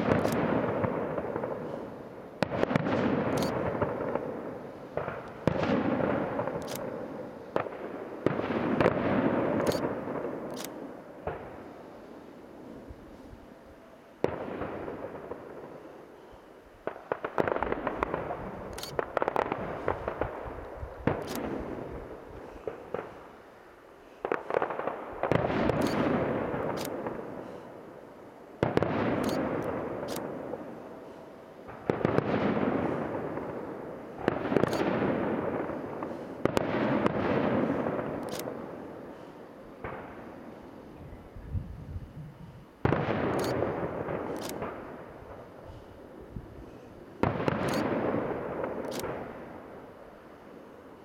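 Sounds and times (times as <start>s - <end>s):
fireworks bursting with bangs: 0.0s - 13.3s, 14.1s - 40.9s, 42.4s - 51.0s
fireworks crackling: 0.0s - 13.3s, 14.2s - 40.9s.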